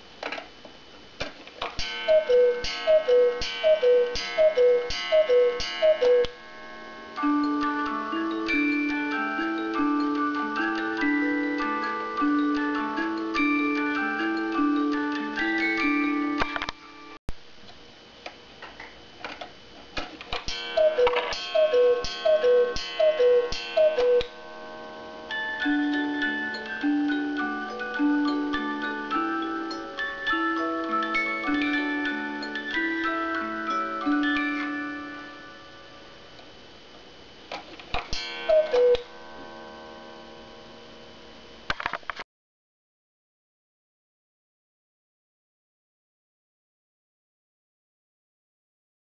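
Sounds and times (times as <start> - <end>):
two-note cuckoo call: 1.8 - 6.4, 20.5 - 24.4, 38.2 - 39.2
music box tune: 1.8 - 17.2, 20.5 - 24.4, 25.2 - 36.2, 38.2 - 39.3.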